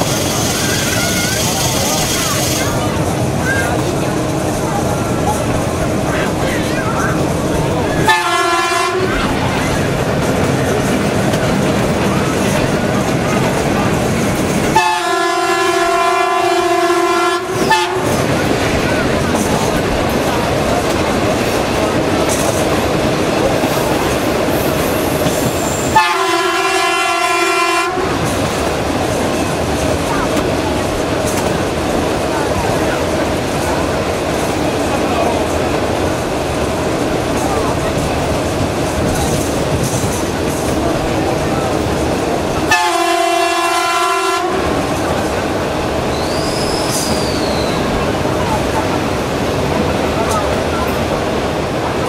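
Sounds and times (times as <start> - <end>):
train wheels on track: 0.0 - 52.0
locomotive horn blast: 0.8 - 2.8, 8.0 - 9.2, 14.7 - 18.3, 25.8 - 28.3, 42.7 - 44.8.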